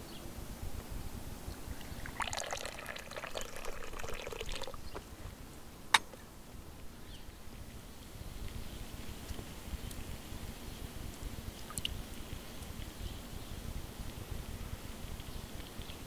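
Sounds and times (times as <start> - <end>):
hot water pouring into a cup: 1.8 - 4.8.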